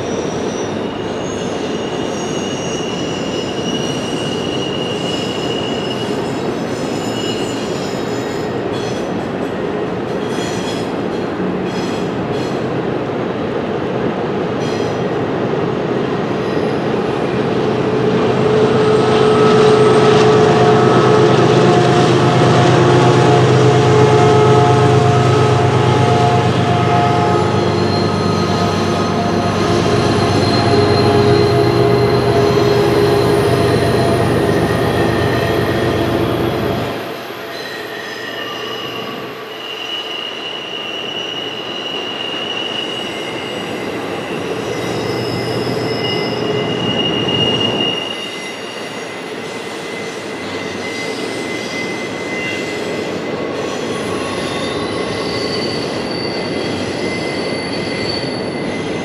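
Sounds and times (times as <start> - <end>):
high wheel squeal: 0.0 - 9.2, 16.4 - 59.0
rumble of train wheels on rail: 0.0 - 37.4.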